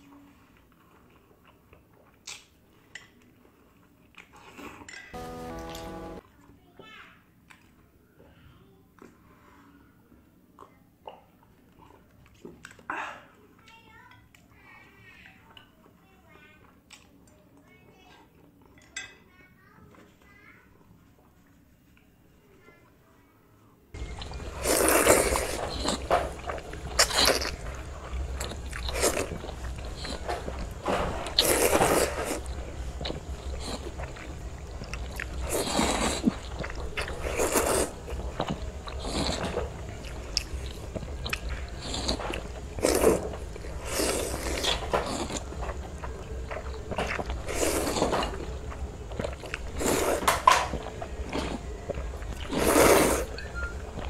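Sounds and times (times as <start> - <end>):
wet noodle slurping: 24.0 - 48.5, 49.1 - 54.0
chewing and smacking: 24.0 - 54.0.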